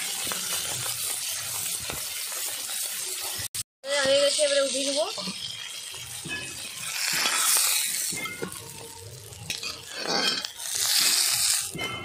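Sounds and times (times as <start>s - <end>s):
fish sizzling in hot oil: 0.0s - 12.0s
metal spatula scraping a wok: 5.6s - 12.0s.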